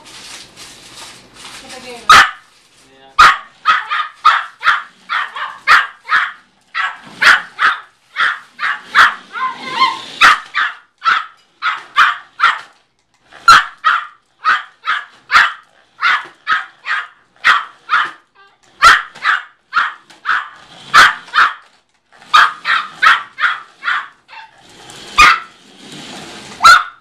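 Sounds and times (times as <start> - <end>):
small dog barking high-pitched: 2.1 - 2.5, 3.2 - 12.7, 13.5 - 18.2, 18.8 - 21.6, 22.3 - 24.5, 25.2 - 25.5, 26.6 - 27.0.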